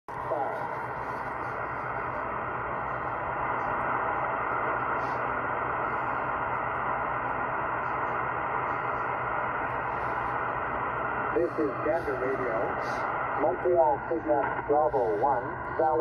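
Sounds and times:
shortwave radio static hiss: 0.1s - 16.0s.

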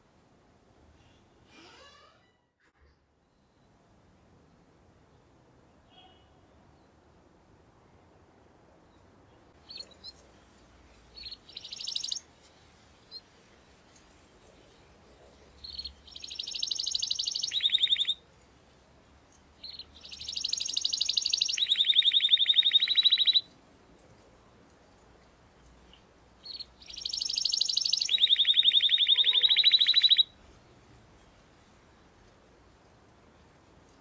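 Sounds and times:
canary singing trills: 11.1s - 12.3s, 15.6s - 18.2s, 19.6s - 23.5s, 25.8s - 30.4s.

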